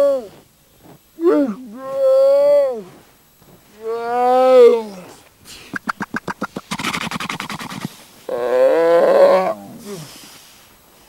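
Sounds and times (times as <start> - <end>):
seal clicking pulses: 5.6 - 8.0
seal rasping: 5.7 - 8.0
seal wavering call: 5.7 - 9.6.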